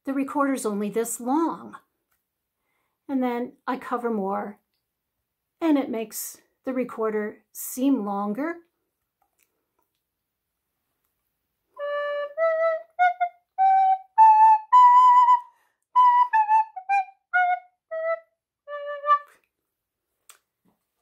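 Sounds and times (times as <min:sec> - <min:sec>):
recorder playing a scale: 0:11.8 - 0:19.4.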